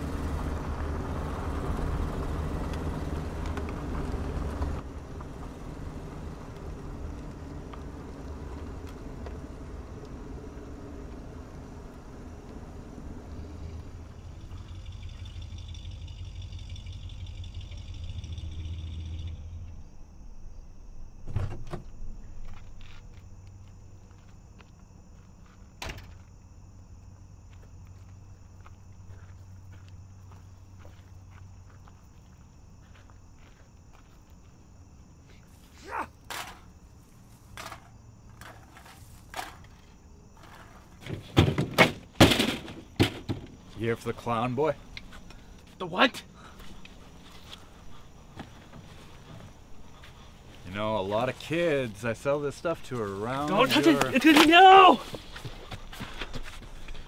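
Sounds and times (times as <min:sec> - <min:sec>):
car engine idling: 0:00.0 - 0:19.8
knocks and rattles on trailer door: 0:41.0 - 0:43.6.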